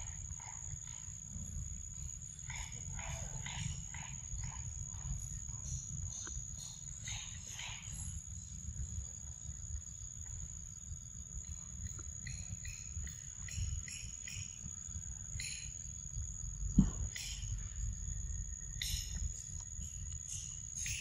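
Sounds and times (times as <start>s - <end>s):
constant low rumble: 0.0s - 21.0s
high-pitched insect drone: 0.0s - 21.0s
repeated animal calls: 2.3s - 8.2s.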